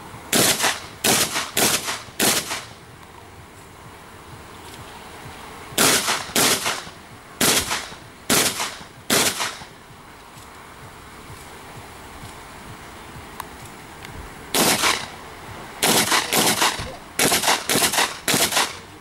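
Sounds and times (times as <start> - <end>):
shotgun shots: 0.3 - 2.8, 5.8 - 9.7, 14.6 - 15.1, 15.8 - 18.8.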